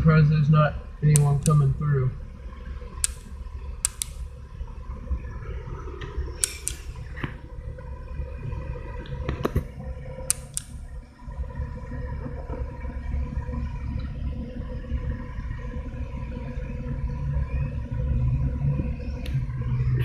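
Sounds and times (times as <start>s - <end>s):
car engine idling: 0.0s - 20.0s
sharp clicks: 1.0s - 1.8s, 3.0s - 4.4s, 6.4s - 7.4s, 10.3s - 11.0s.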